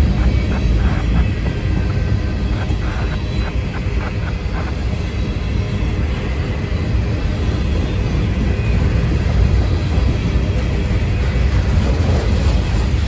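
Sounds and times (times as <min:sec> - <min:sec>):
steel wheels rumbling on rail: 0:00.0 - 0:13.0.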